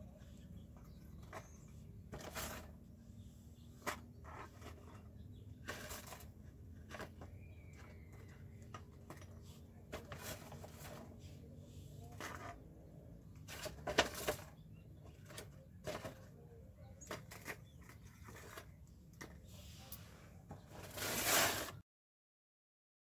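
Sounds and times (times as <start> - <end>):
paper rustling: 3.8 - 11.3, 13.4 - 16.4, 17.0 - 19.9, 20.6 - 21.8.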